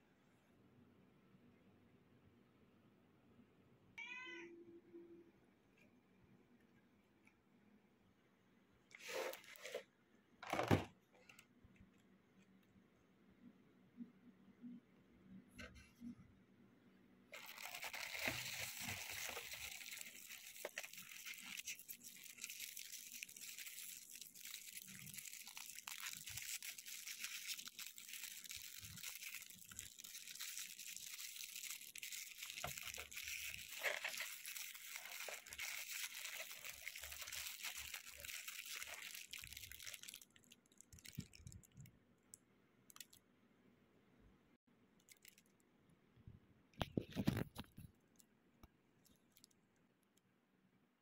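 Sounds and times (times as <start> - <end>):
cellophane wrappers crinkling: 17.3 - 41.9, 42.9 - 43.2, 45.0 - 45.5.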